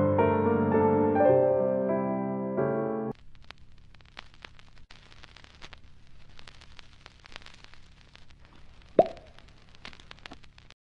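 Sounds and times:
crackle of scattered clicks: 0:03.1 - 0:10.8.

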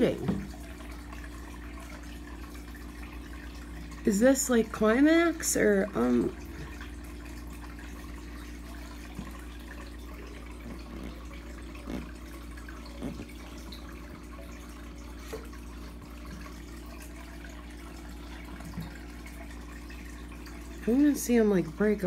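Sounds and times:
soft splashes and knocks: 0:00.0 - 0:00.7
faint water sounds: 0:00.0 - 0:22.0.

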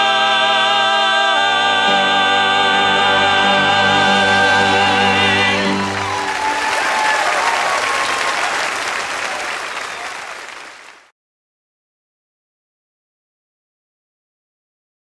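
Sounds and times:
voices singing gospel chord: 0:00.0 - 0:08.2
audience applause: 0:05.5 - 0:11.1.

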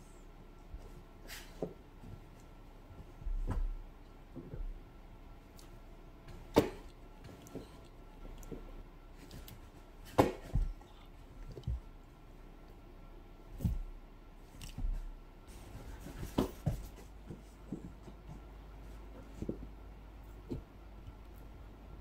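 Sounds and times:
dog thumping on furniture and floor: 0:00.7 - 0:04.8, 0:08.5 - 0:10.9, 0:13.5 - 0:13.9, 0:14.6 - 0:19.7.

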